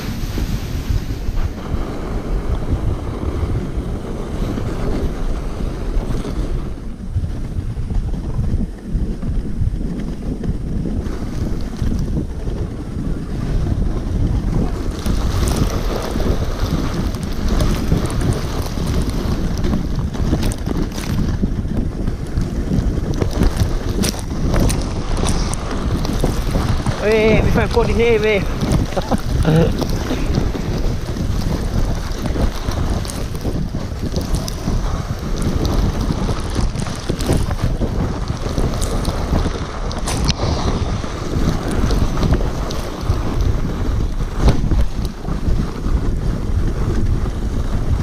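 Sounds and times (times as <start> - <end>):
sledge runners scraping on snow: 0.0 - 48.0
wind rushing over microphone: 0.0 - 48.0.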